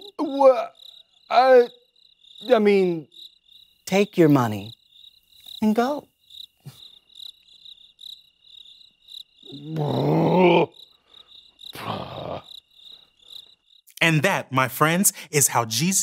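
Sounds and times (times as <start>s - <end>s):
crickets chirping: 0.0s - 16.0s
man groaning: 9.5s - 10.8s, 11.8s - 12.5s.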